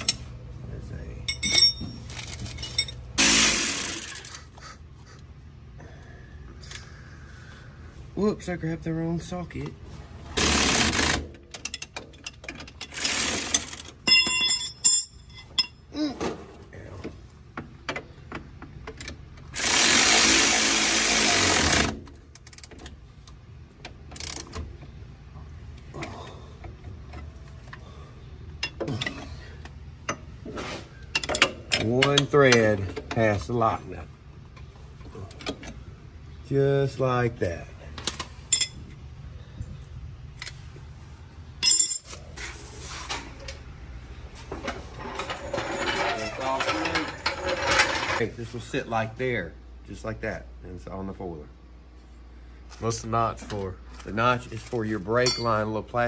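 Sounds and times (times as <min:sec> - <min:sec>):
steady low hum: 0:00.0 - 0:56.0
cordless power wrench running: 0:03.2 - 0:04.4, 0:10.4 - 0:11.3, 0:12.8 - 0:13.9, 0:19.4 - 0:22.6
floor jack scraping on concrete: 0:44.8 - 0:48.2.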